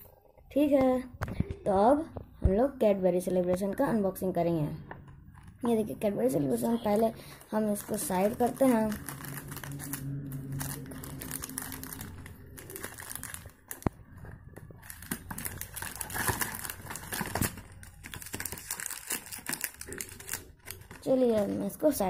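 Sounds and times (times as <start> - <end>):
plastic wrappers crinkling: 5.2 - 22.0.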